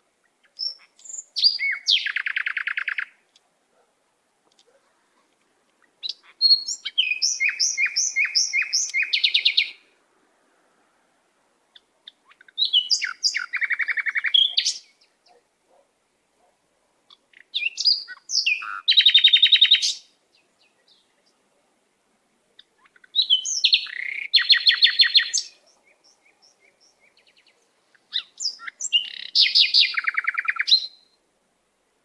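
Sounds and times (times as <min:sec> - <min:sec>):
songbird singing trills: 0:00.2 - 0:03.4, 0:05.8 - 0:09.9, 0:11.7 - 0:15.4, 0:17.1 - 0:21.4, 0:22.6 - 0:31.2.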